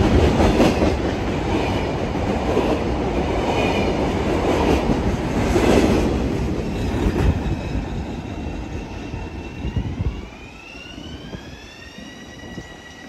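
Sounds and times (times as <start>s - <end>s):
freight train wheels rumbling on rails: 0.0s - 13.0s.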